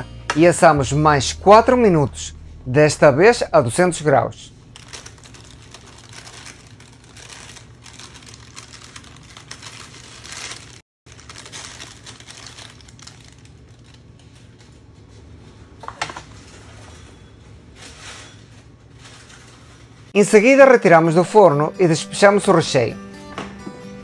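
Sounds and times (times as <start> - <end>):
dried beans rattling: 4.7 - 14.2
parchment paper crinkling: 4.7 - 15.2.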